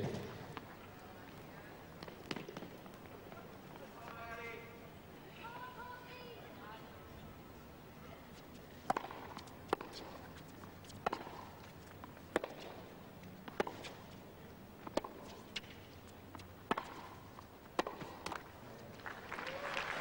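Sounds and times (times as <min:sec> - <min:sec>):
tennis ball struck by racket: 0:02.0 - 0:02.8, 0:08.8 - 0:10.3, 0:10.9 - 0:11.7, 0:12.3 - 0:14.0, 0:14.8 - 0:15.8, 0:16.4 - 0:18.5.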